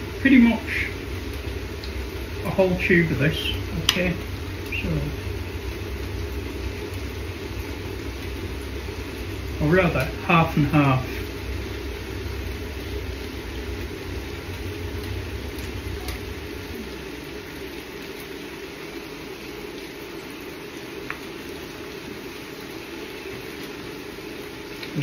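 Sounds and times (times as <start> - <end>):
pot steaming rumble and hiss: 0.0 - 25.0.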